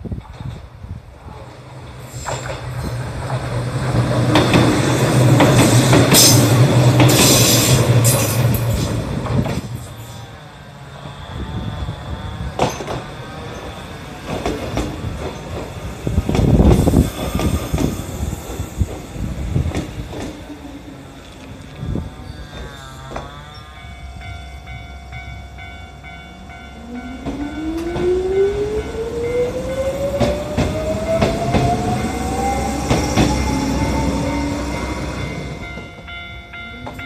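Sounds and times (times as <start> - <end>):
electric train passing: 0.0 - 37.0
wheels clattering on rails: 0.1 - 10.1, 12.6 - 23.4.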